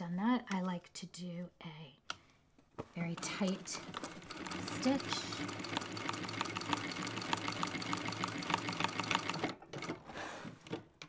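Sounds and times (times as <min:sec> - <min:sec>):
sewing machine motor hum: 0:03.1 - 0:10.0.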